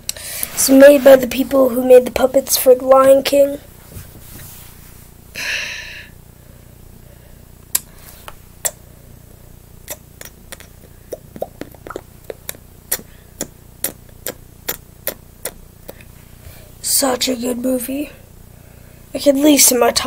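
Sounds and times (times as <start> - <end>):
faint steady hum: 0.0 - 20.0
mouth clicks and lip pops: 7.6 - 7.9, 8.6 - 8.8, 9.8 - 16.1.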